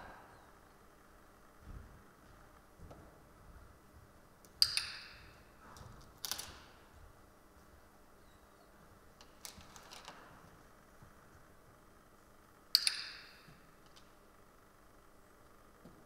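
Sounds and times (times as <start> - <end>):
training clicker click: 4.5 - 5.2.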